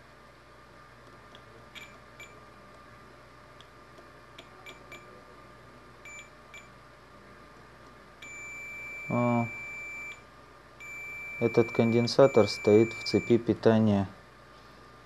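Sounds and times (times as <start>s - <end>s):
multimeter buzzer chirps: 8.2s - 10.2s, 10.8s - 13.5s.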